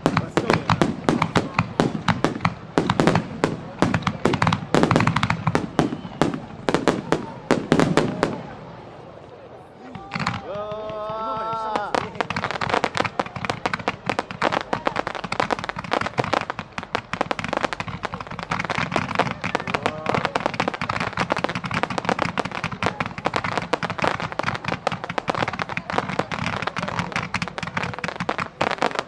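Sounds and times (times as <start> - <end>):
fireworks bangs and crackling: 0.0 - 29.0.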